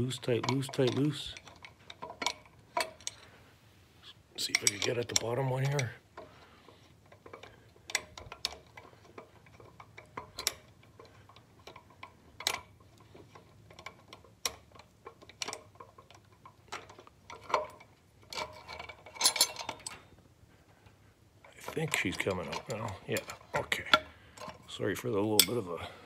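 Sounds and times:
metallic clicks and taps: 7.0s - 20.0s.

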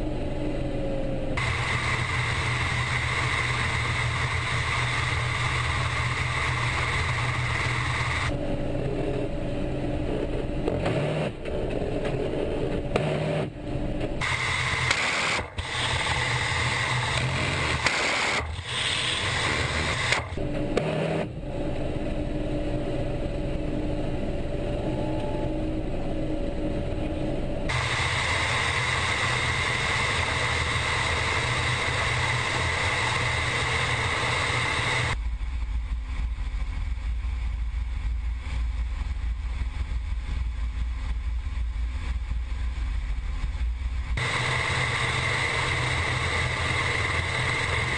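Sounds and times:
helicopter engine and rotor rumble: 0.0s - 18.6s, 21.5s - 35.2s
high whine: 0.0s - 47.9s.

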